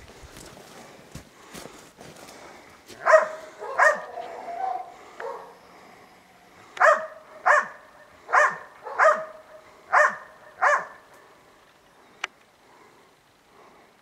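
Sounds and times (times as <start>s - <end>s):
dog barking: 3.0s - 5.6s, 6.8s - 11.1s.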